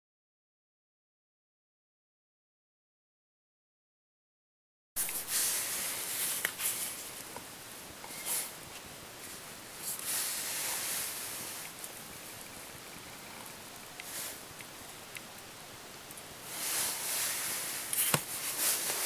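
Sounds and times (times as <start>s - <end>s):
rustling handling noise: 5.0s - 14.8s, 16.4s - 19.0s
steady hiss: 5.0s - 19.0s.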